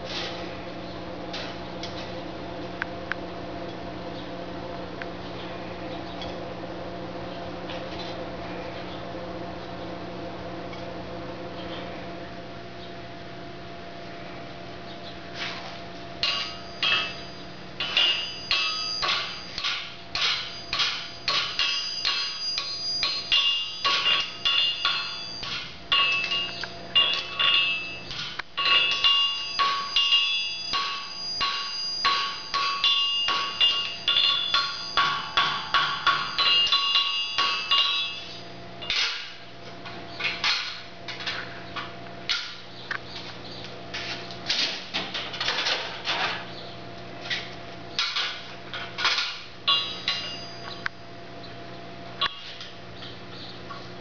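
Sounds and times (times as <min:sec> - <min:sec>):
steady low hum: 0:00.0 - 0:54.0
hammer striking metal on anvil: 0:16.2 - 0:39.5, 0:48.0 - 0:50.8, 0:52.2 - 0:52.6.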